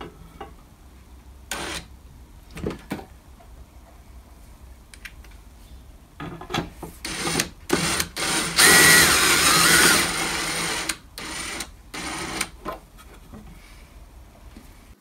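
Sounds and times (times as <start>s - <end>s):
drill driving screws into metal: 1.5s - 1.9s, 7.0s - 12.6s.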